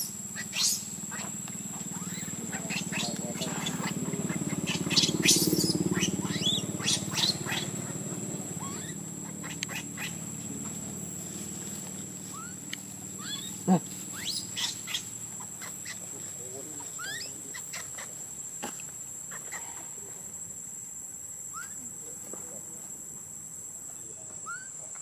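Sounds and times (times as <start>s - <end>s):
baby monkey crying: 0.0s - 10.4s, 12.3s - 16.0s, 17.0s - 18.1s, 21.5s - 21.8s, 24.4s - 24.7s.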